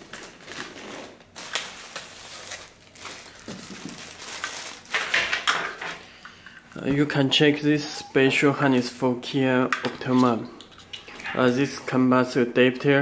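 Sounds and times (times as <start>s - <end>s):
plastic bag crinkling: 0.0s - 6.0s.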